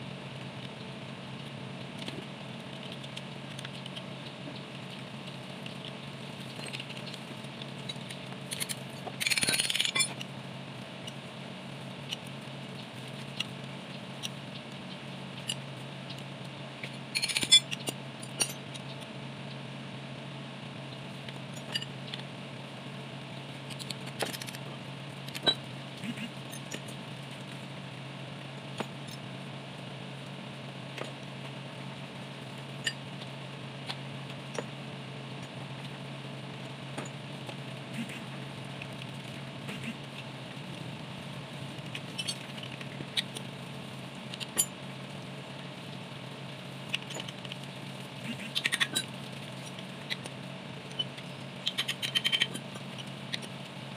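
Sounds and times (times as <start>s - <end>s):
steady low hum: 0.0s - 53.9s
metal tools clinking on engine: 8.5s - 10.2s, 17.2s - 18.7s.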